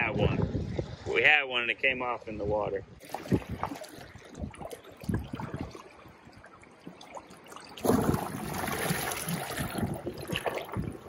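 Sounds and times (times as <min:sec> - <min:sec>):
seawater lapping around rock: 0:00.0 - 0:11.0
water surging over rock: 0:07.8 - 0:11.0.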